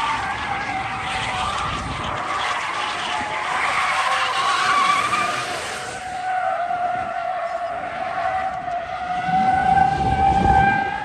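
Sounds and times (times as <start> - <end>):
rushing skid noise: 0.0 - 11.0
tyres squealing: 2.4 - 8.4.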